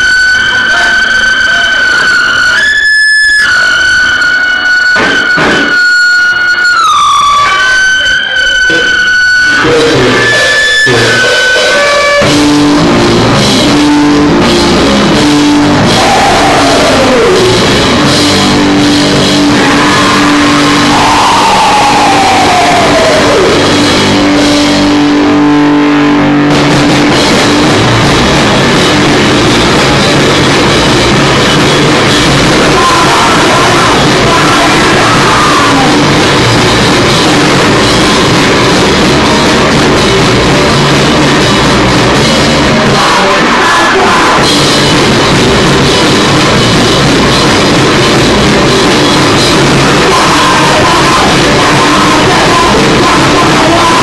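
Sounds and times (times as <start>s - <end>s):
distorted electric guitar: 0.0s - 54.0s
drums: 0.0s - 54.0s
live heavy rock band: 0.0s - 54.0s.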